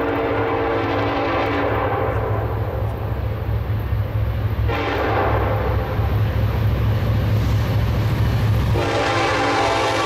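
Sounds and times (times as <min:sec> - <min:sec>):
locomotive air horn: 0:00.0 - 0:02.6, 0:04.6 - 0:05.8, 0:08.7 - 0:10.0
train rumbling: 0:00.0 - 0:10.0.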